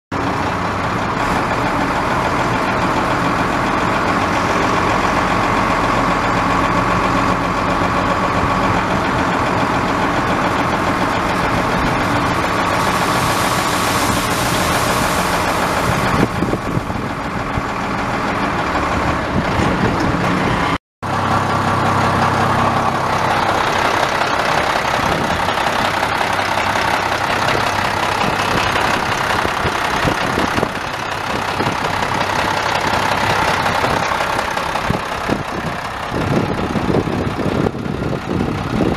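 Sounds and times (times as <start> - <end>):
diesel truck engine idling: 0.1 - 38.9
hiss: 12.6 - 16.3.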